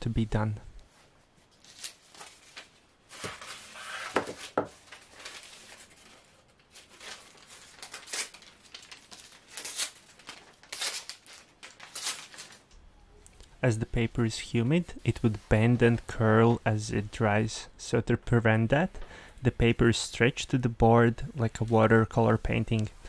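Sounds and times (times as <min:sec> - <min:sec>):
paper tape rustling and crinkling: 0:00.9 - 0:12.8
paper tape ripping: 0:01.6 - 0:12.7.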